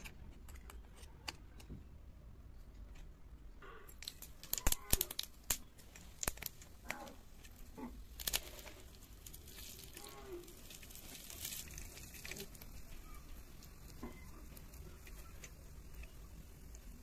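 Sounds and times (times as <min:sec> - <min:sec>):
seeds sizzling and popping in oil: 0:03.8 - 0:17.0.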